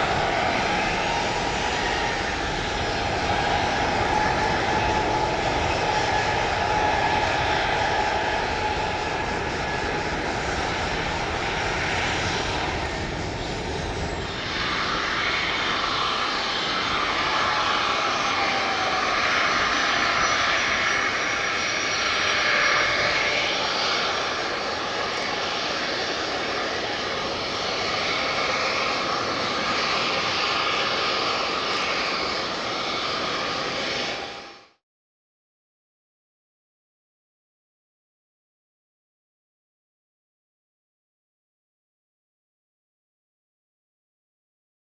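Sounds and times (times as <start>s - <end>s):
jet engine rumble with high whine: 0.0s - 34.8s.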